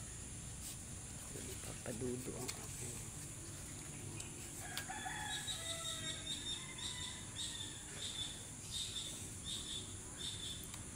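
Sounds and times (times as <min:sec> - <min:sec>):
thin whistled calls: 0:05.2 - 0:10.9.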